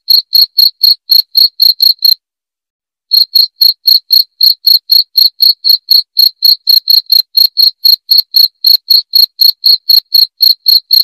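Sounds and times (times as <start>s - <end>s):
cricket chirping: 3.1s - 10.0s.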